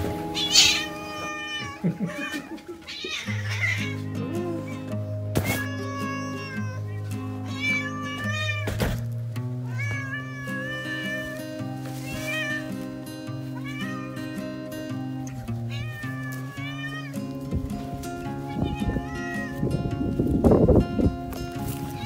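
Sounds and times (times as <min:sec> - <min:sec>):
cat meowing loudly: 0:00.4 - 0:04.8, 0:05.4 - 0:08.8, 0:09.6 - 0:11.4, 0:12.0 - 0:12.7, 0:13.5 - 0:14.3, 0:15.7 - 0:17.2, 0:18.5 - 0:19.7.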